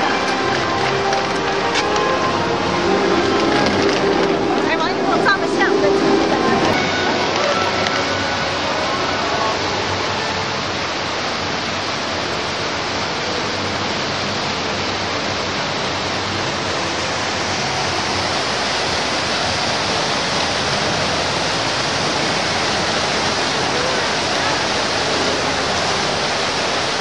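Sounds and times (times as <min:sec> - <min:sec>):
water gushing from fountain spout: 0:00.0 - 0:27.0.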